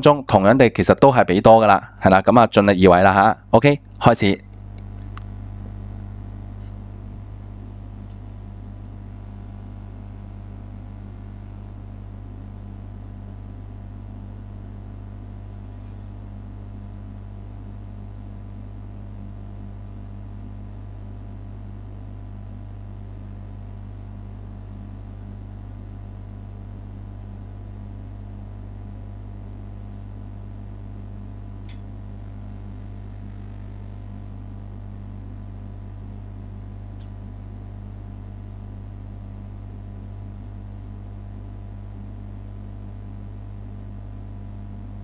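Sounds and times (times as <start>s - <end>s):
steady low hum with hiss: 0.0s - 45.0s
faint high tick: 37.0s - 37.2s.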